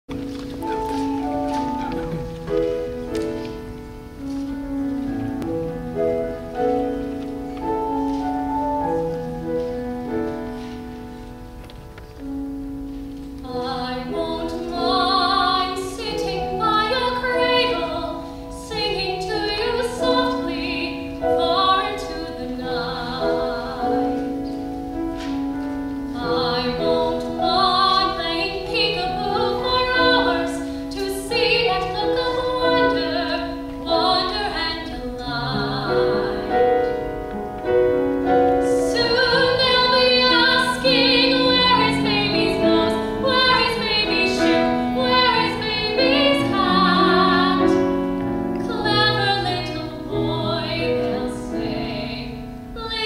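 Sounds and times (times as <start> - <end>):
grand piano playing: 0.0 - 53.0
woman singing: 13.4 - 24.4, 26.1 - 37.0, 38.5 - 53.0.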